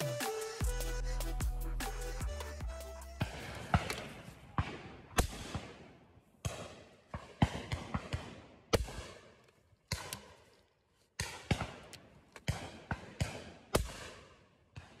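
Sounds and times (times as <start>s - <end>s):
shotgun shots with echo: 3.2s - 10.4s, 12.4s - 15.0s.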